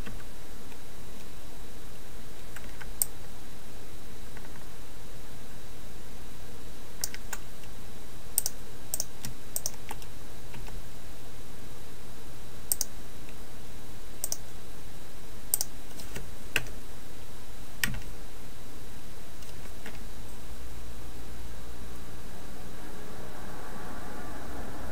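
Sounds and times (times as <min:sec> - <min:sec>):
steady background hiss: 0:00.0 - 0:24.9
computer keys and mouse clicking: 0:07.0 - 0:07.4, 0:08.4 - 0:10.8, 0:12.7 - 0:12.9, 0:14.2 - 0:14.4, 0:15.5 - 0:16.8.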